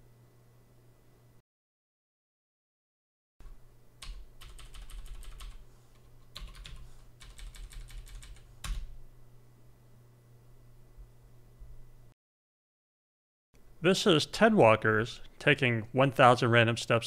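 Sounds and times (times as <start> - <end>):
typing on computer keyboard: 4.0 - 8.9.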